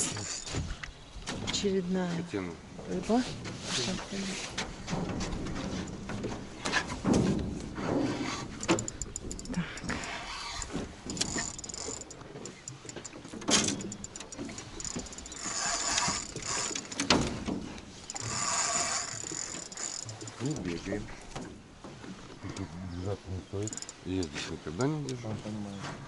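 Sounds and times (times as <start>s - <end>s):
fishing reel clicking and whirring: 8.4s - 17.2s, 18.0s - 20.7s, 23.6s - 24.1s.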